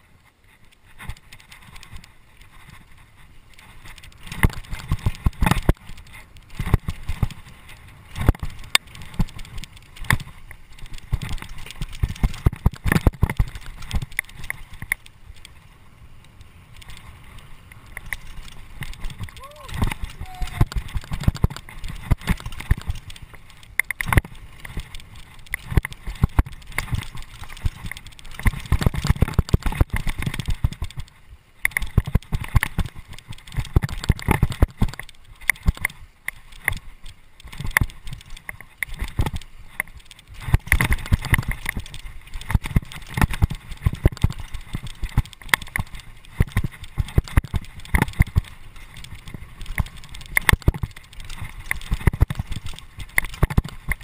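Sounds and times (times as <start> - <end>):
mountain bike rattling on dirt trail: 0.0 - 54.0.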